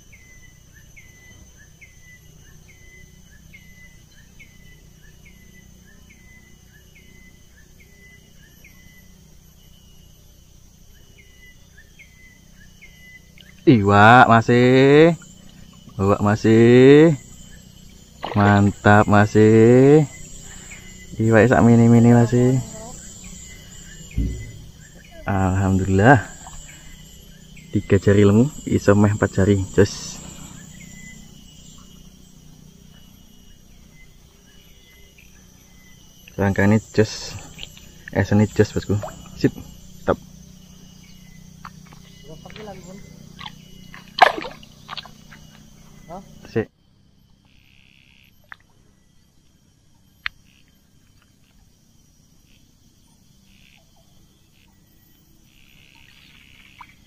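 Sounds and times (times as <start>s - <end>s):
faint insect buzz: 0.0s - 57.0s
low steady hum: 0.0s - 57.0s
faint short chirps: 23.9s - 25.2s.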